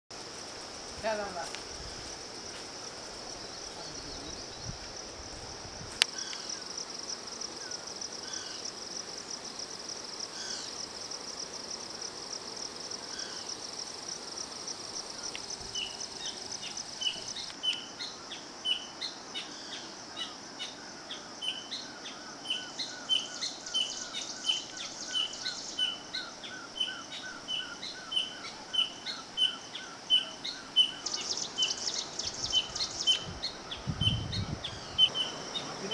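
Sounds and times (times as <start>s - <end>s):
insects droning: 0.1s - 35.9s
bird chirping: 21.4s - 35.9s.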